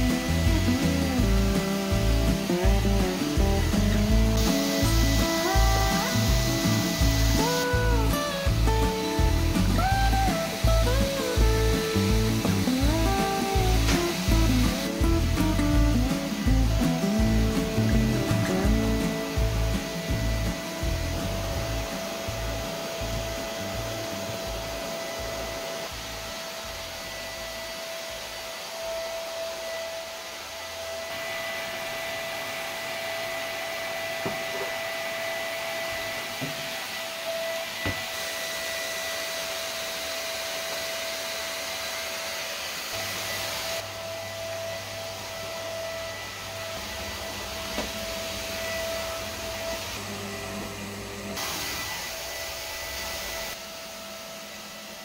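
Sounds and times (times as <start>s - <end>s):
vacuum cleaner whirring: 0.0s - 55.0s.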